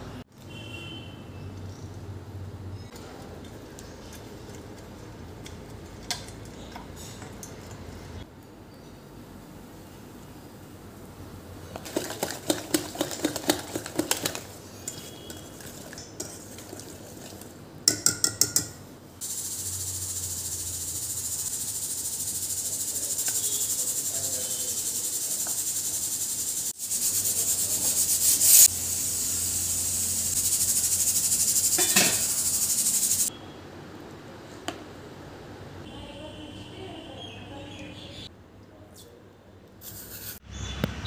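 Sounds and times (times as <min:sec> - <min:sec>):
whisk clinking against metal bowl: 0:11.8 - 0:18.8, 0:19.5 - 0:26.0, 0:30.5 - 0:33.3
steady high hiss: 0:19.2 - 0:33.3.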